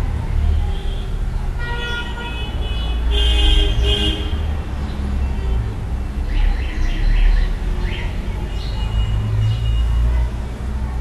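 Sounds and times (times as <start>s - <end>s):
low traffic rumble: 0.0s - 11.0s.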